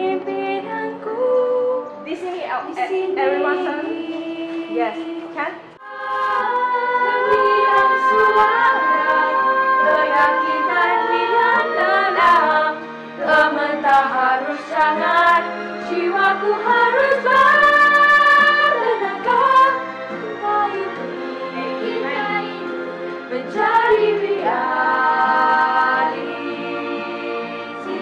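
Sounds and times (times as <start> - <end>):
girls choir singing a cappella: 5.8 - 28.0.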